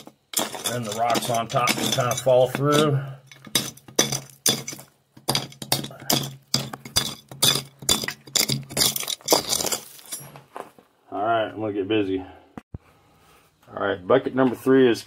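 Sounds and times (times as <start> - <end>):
rocks clattering on steel rails: 0.0 - 10.5.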